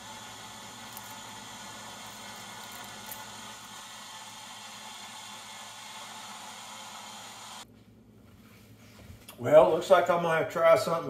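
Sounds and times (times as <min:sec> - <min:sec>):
whirring motor hum with hiss: 0:00.0 - 0:07.7.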